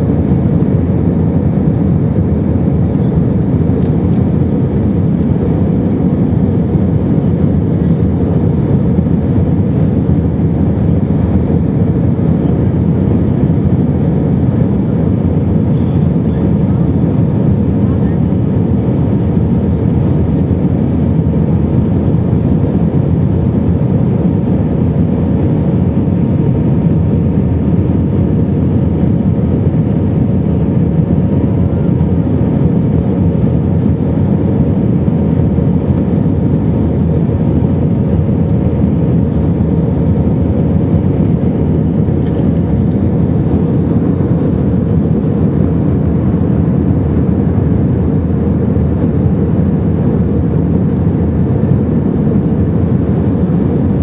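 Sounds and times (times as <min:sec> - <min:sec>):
jet engine rumble in cabin: 0:00.0 - 0:54.0.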